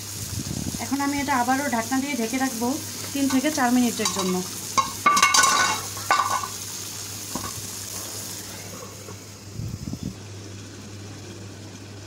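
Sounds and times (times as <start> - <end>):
curry bubbling and sizzling in pan: 0.0 - 9.5.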